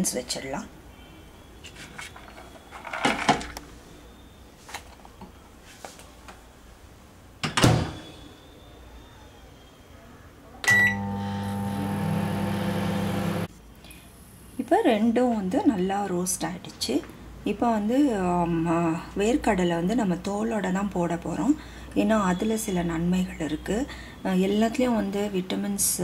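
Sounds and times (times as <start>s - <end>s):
keypad beep: 10.7s - 11.1s
microwave oven humming: 10.7s - 13.5s.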